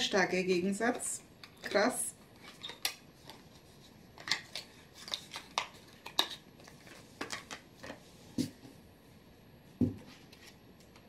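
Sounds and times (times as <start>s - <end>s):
packaging rustles and taps: 4.1s - 8.6s.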